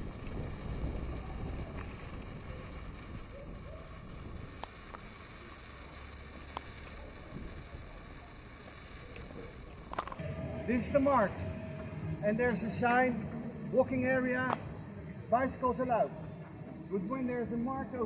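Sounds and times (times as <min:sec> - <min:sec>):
wind rumble on microphone: 0:00.0 - 0:04.6
bicycle clicks and rattles: 0:00.0 - 0:10.2.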